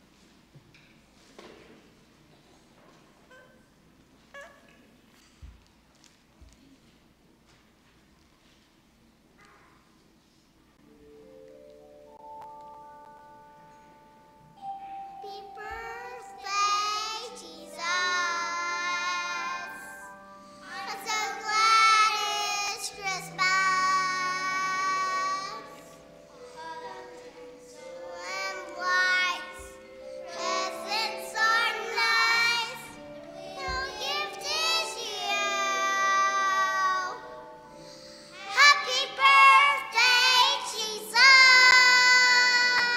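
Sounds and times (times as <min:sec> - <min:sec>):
piano accompaniment: 0:10.8 - 0:42.9
girl singing into microphone: 0:15.1 - 0:37.3, 0:38.0 - 0:42.9.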